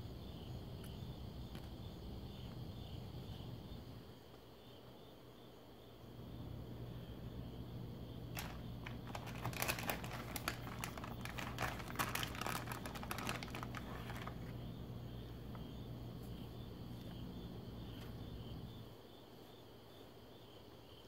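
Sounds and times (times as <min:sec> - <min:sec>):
plastic wrapper crinkling: 0:08.4 - 0:14.5.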